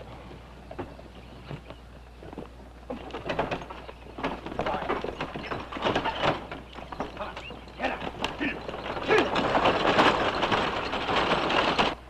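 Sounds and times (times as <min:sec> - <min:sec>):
horse hoofbeats: 0:00.0 - 0:12.0
wagon wheels rattling: 0:00.0 - 0:12.0.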